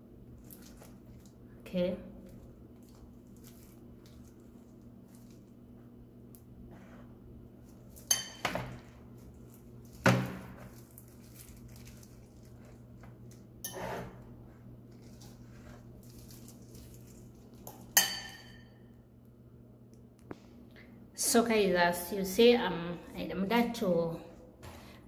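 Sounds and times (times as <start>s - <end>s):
fork clinking on metal tray: 17.7s - 18.7s.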